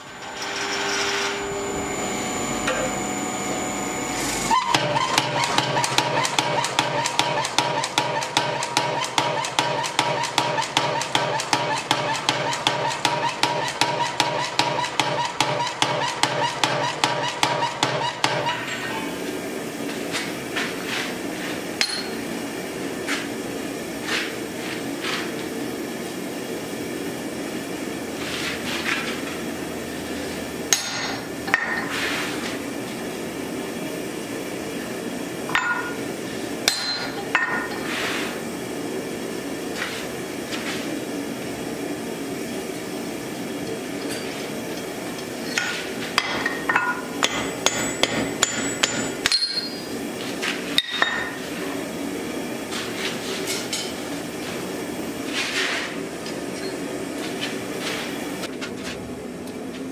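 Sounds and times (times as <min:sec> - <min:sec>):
steady low hum: 0:00.0 - 0:05.4
hammer striking metal on anvil: 0:21.8 - 0:22.2, 0:30.7 - 0:31.9, 0:35.5 - 0:36.0, 0:36.6 - 0:37.8, 0:45.5 - 0:49.9, 0:50.8 - 0:51.4.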